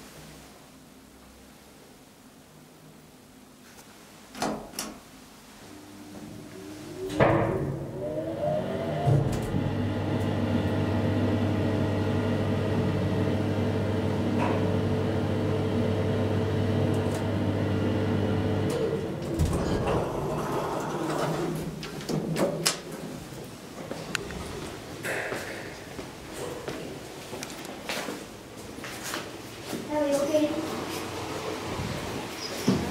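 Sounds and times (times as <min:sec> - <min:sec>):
elevator door motor whining: 0:05.8 - 0:22.0
elevator car stopping thump: 0:06.9 - 0:10.9
elevator doors clicking and knocking: 0:07.0 - 0:10.4, 0:18.7 - 0:23.0.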